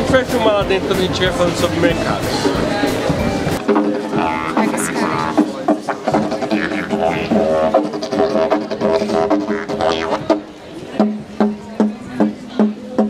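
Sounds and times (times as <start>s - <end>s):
didgeridoo drone: 1.8s - 10.6s.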